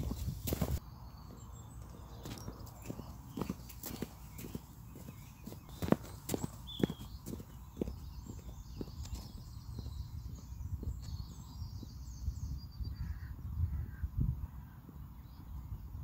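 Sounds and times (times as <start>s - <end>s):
boot footsteps on dirt track: 0.0s - 12.0s
birds calling and singing: 0.0s - 16.0s.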